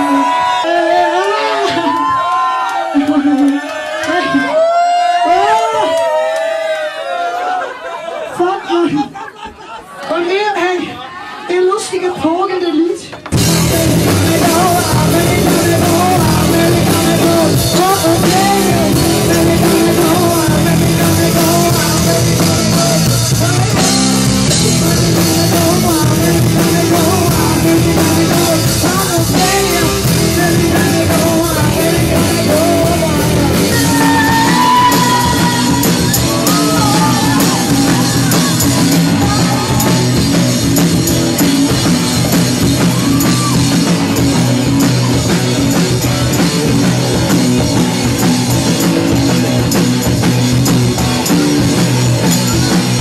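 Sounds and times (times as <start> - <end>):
electric guitar: 13.1 - 53.0
drum kit: 13.2 - 53.0
woman singing: 13.6 - 22.8, 24.7 - 40.0.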